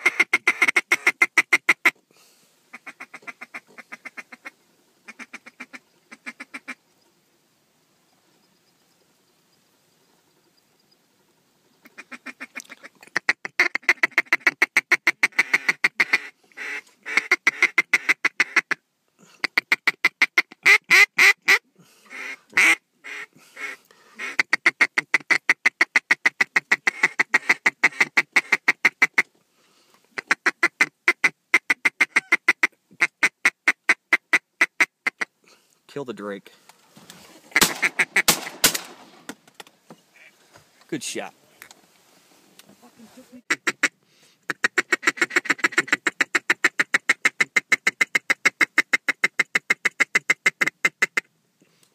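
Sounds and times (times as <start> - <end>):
duck call quacking: 0.0 - 2.0, 2.7 - 4.5, 5.1 - 6.8, 11.8 - 18.8, 19.4 - 29.3, 30.2 - 35.3, 37.5 - 38.4, 43.4 - 51.3.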